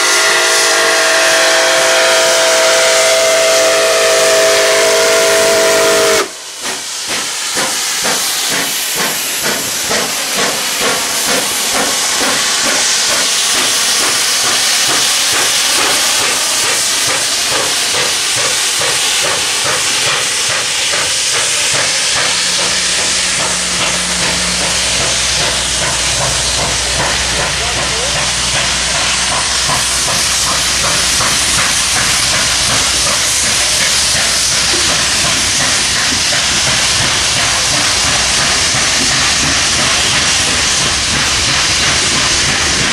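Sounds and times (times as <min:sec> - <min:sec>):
steam whistle blast: 0:00.0 - 0:06.6
rolling train cars: 0:00.0 - 0:42.9
steady hiss of steam: 0:00.0 - 0:42.9
steam locomotive exhaust chuffing: 0:00.0 - 0:42.9.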